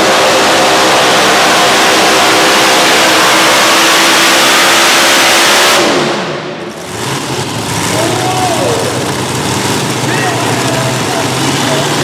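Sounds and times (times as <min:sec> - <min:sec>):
tractor engines roaring: 0:00.0 - 0:12.0
voices: 0:07.9 - 0:09.1, 0:10.0 - 0:12.0.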